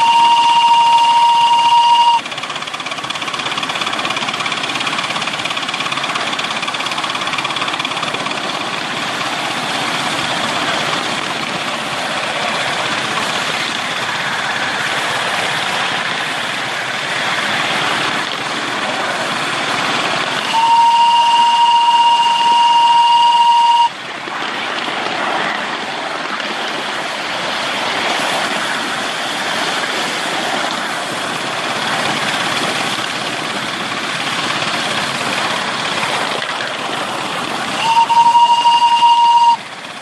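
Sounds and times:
steam locomotive whistle: 0.0 - 2.5, 20.4 - 24.1, 37.7 - 40.0
small engine running on track: 0.0 - 40.0.

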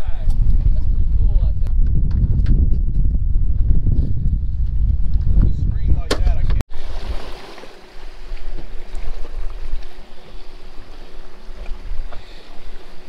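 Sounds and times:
wind rumble on microphone: 0.0 - 7.3
water washing: 6.7 - 13.0.

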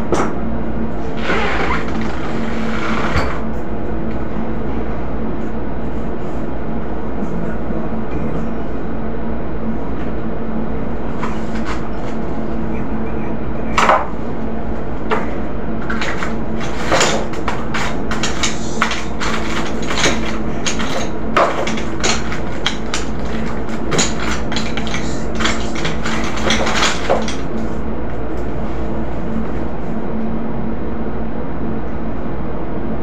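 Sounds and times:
background hum: 0.0 - 33.0.

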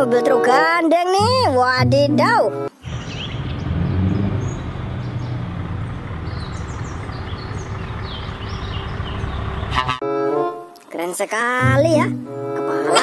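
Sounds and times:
birds chirping faintly: 2.6 - 10.0
truck engine rumbling: 2.8 - 10.0.

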